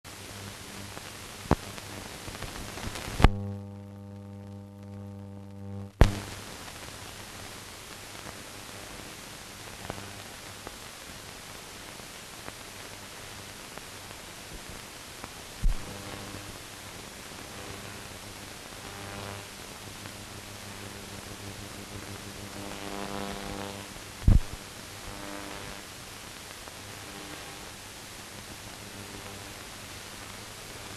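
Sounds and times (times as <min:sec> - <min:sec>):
low mains hum: 0:00.1 - 0:30.9
steady hiss: 0:00.1 - 0:30.9
low thump: 0:24.3 - 0:24.5.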